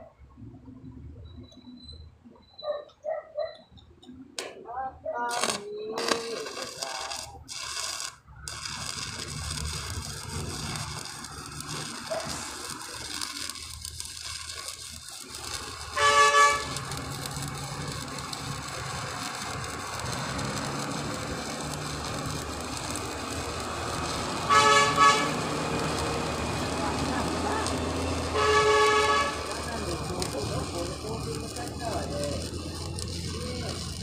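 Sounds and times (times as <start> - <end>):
arc welding crackling hiss: 5.3 - 34.0
short horn blasts: 16.0 - 16.9, 24.4 - 25.6, 28.3 - 29.7.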